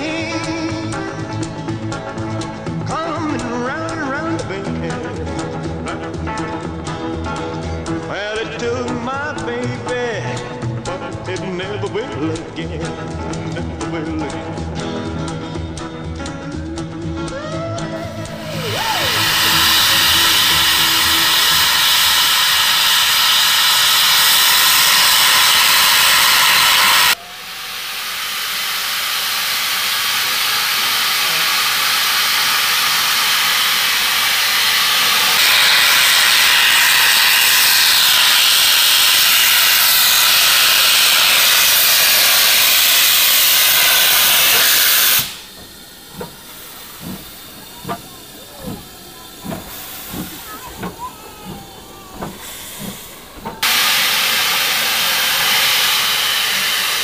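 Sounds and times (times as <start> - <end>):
steam hissing from locomotive: 17.3 - 57.0.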